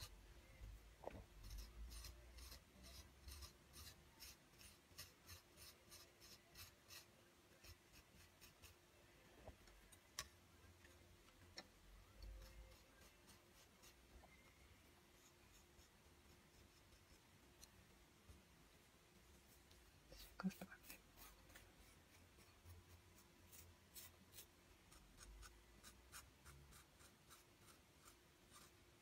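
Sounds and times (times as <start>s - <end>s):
sculpting tool scratching clay: 1.2s - 8.8s, 20.2s - 28.8s.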